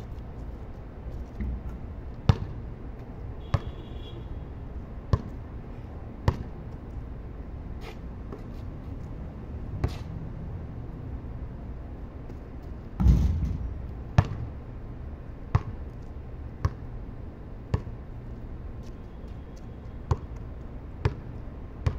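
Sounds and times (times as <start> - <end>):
basketball bouncing on concrete: 1.4 - 2.6, 3.4 - 3.7, 5.1 - 5.4, 6.2 - 6.6, 13.0 - 14.5, 15.5 - 15.8, 16.6 - 16.8, 17.7 - 18.0, 20.0 - 21.9.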